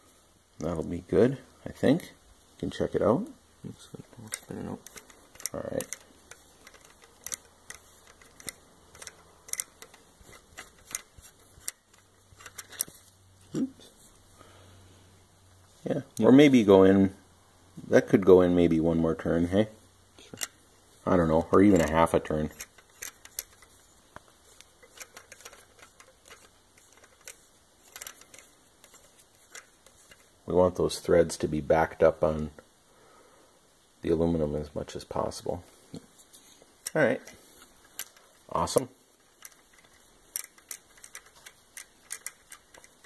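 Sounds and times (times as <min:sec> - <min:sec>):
light metallic clicks and ticks: 0:04.0 - 0:13.0, 0:21.6 - 0:30.3, 0:36.8 - 0:43.0.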